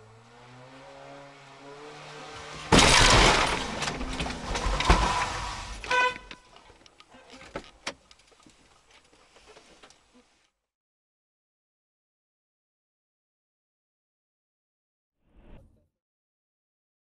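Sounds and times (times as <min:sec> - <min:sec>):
vehicles crunching and scraping: 0:01.4 - 0:10.4
car horn toot: 0:05.8 - 0:06.6.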